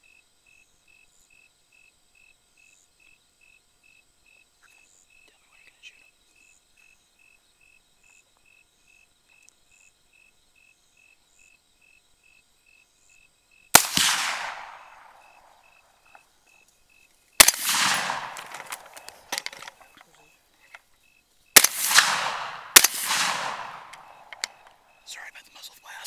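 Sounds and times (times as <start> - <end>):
rifle shots with echo: 13.7 - 15.7, 17.4 - 19.9, 21.6 - 24.8.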